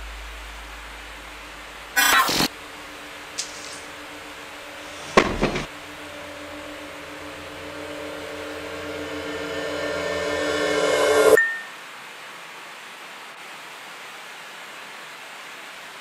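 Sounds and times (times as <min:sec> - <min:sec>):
loud cinematic hit: 0:00.0 - 0:11.4
low held drone: 0:00.0 - 0:11.4
rising tone: 0:00.0 - 0:11.6.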